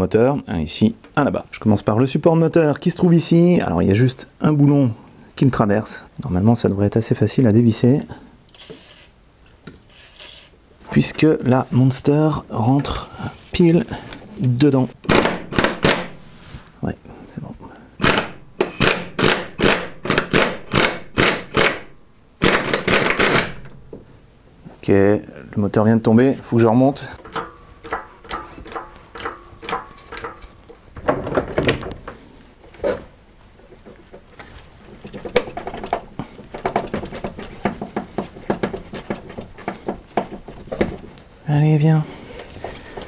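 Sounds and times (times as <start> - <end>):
pneumatic impact wrench bursts: 15.0 - 16.1, 18.0 - 23.8
metal bolt clicking and knocking: 15.0 - 16.2, 18.0 - 23.8, 27.2 - 32.0, 35.1 - 41.0.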